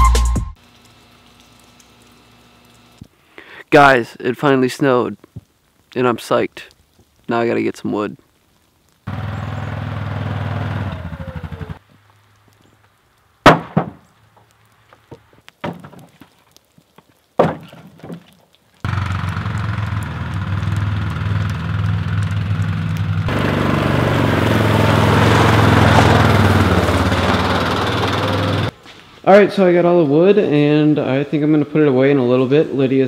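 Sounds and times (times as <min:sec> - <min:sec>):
atv engine running: 0:09.1 - 0:11.8, 0:18.9 - 0:28.7
logs dropped into wooden trailer: 0:13.4 - 0:14.0, 0:14.9 - 0:16.4, 0:17.4 - 0:18.4.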